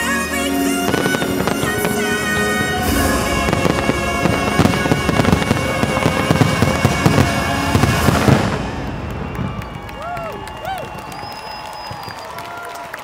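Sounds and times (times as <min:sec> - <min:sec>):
music: 0:00.0 - 0:10.0
fireworks bursting and crackling: 0:00.0 - 0:12.9.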